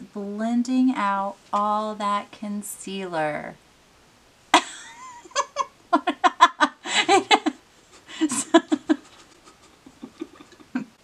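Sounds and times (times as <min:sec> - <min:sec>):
person laughing: 0:04.6 - 0:11.0.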